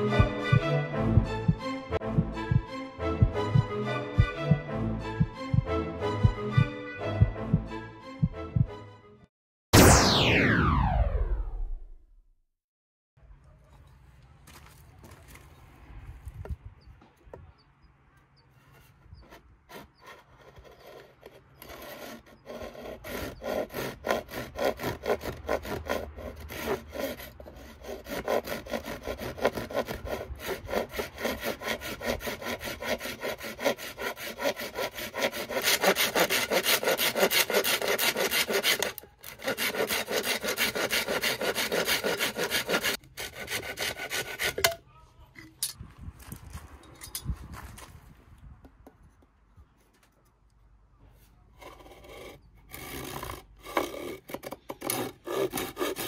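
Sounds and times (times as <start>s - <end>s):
hand saw cutting bamboo: 18.6s - 44.8s, 51.6s - 56.0s.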